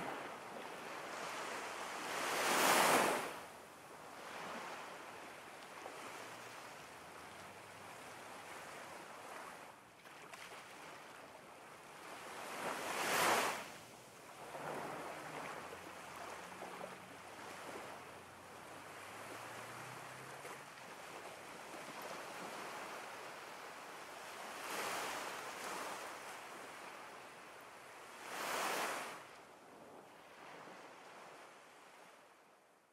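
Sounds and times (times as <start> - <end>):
ocean waves washing on shore: 0.0 - 32.1.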